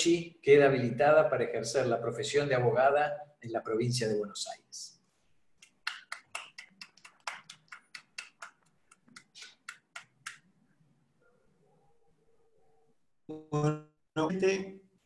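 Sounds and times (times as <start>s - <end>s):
hands clapping quickly: 5.6s - 10.5s.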